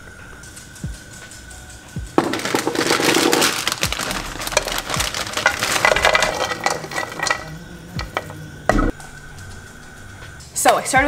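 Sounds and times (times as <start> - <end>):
plastic bag crinkling: 2.2 - 8.3
vegetables crackling in a pan: 2.2 - 8.3.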